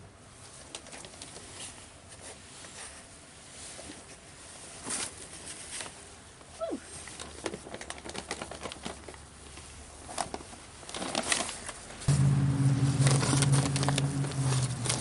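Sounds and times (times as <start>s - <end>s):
dry leaves rustling and crackling: 6.9s - 15.0s.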